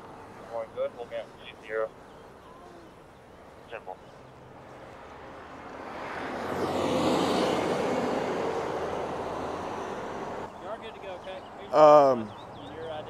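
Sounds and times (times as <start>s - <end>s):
vehicle passing by: 4.2s - 13.0s.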